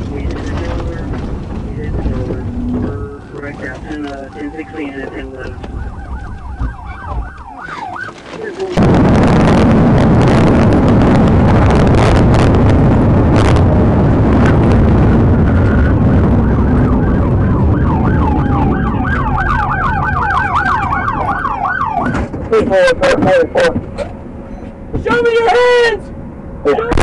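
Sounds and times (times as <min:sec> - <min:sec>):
car wind and road noise: 0:00.0 - 0:27.0
police siren yelping: 0:03.8 - 0:08.8, 0:15.2 - 0:22.3.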